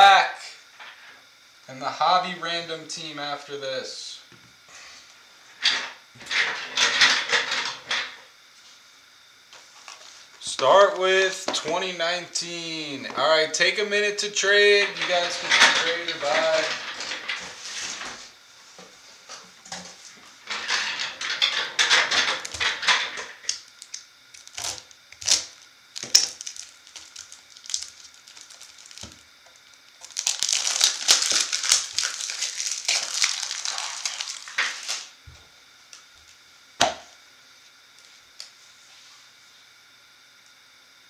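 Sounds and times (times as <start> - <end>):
packaging crinkling: 23.4 - 35.1.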